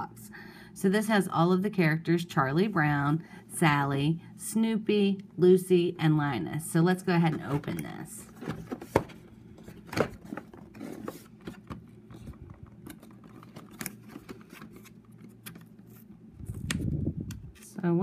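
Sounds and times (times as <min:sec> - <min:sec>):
plastic packaging crinkling and clicking: 0:07.6 - 0:16.1.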